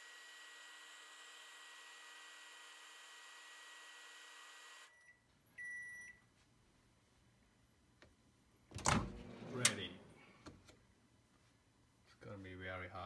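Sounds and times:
microwave beep: 4.9 - 6.3
microwave humming: 8.7 - 10.7.

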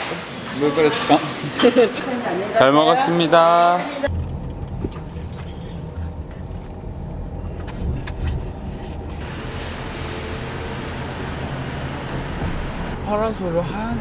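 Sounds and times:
car road rumble from inside: 4.1 - 14.0
surf hissing on beach: 9.2 - 13.0.

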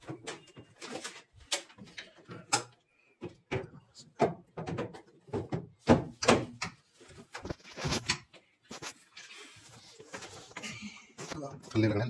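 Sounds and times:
plastic panels knocking and rattling: 0.0 - 7.6.

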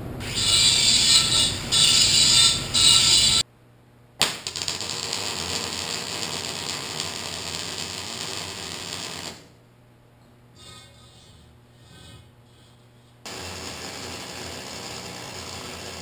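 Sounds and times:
welder arc crackling: 0.0 - 3.4, 4.2 - 9.5, 13.2 - 16.0.

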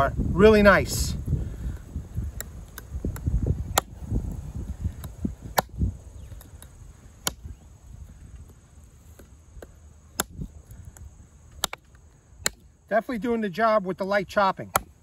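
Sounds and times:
knife chopping into log: 3.7 - 3.9, 10.1 - 10.5, 11.6 - 11.8, 12.4 - 12.6, 14.7 - 15.0.

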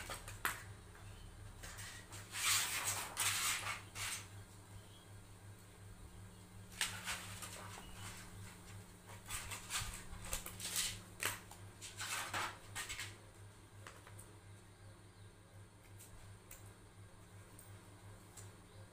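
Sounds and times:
scissors cutting foil: 1.6 - 4.3, 6.7 - 8.2, 9.3 - 13.2
foil crinkling: 6.7 - 13.2.

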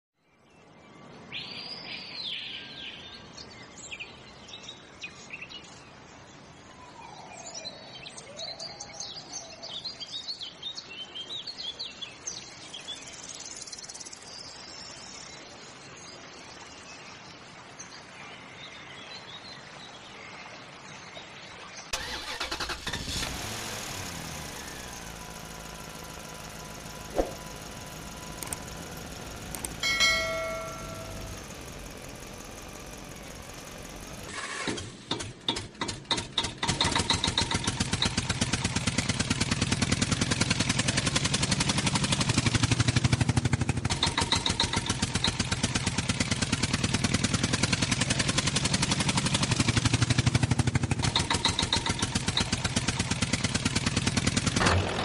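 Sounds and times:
birds chirping: 0.2 - 34.7
vehicle engine starting and running: 21.9 - 55.0.

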